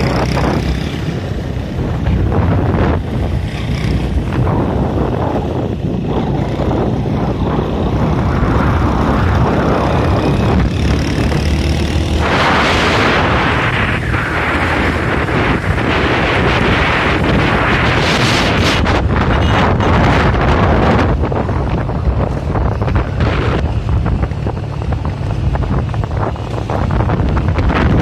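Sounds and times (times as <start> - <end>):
small motorcycle engine running: 0.0 - 16.8
wind rushing over microphone: 0.0 - 28.0.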